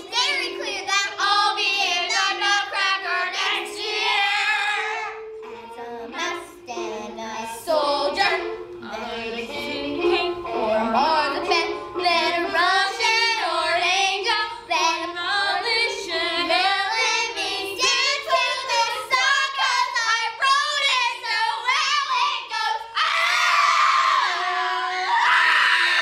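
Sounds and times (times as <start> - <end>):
backing music: 0.0 - 21.7
girls singing a pop song: 0.0 - 26.0
girls screaming: 22.9 - 26.0.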